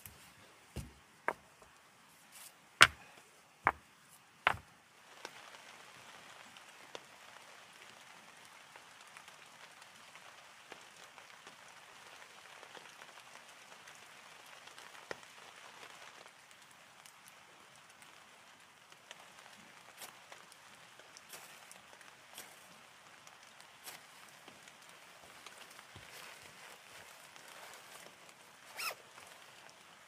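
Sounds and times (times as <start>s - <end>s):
rain pattering: 0.0s - 30.0s
stones clacking together: 2.8s - 3.8s.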